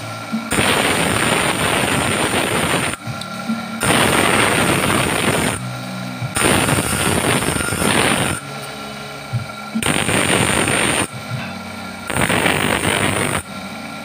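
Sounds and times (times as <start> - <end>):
grinder motor humming: 0.0 - 14.0
bench grinder grinding metal: 6.4 - 9.1.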